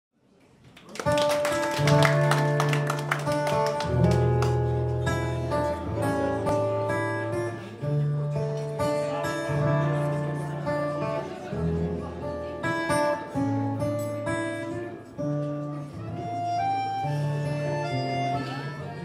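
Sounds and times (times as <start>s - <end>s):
strummed acoustic guitar: 1.0s - 19.0s
held accordion notes: 16.0s - 19.0s.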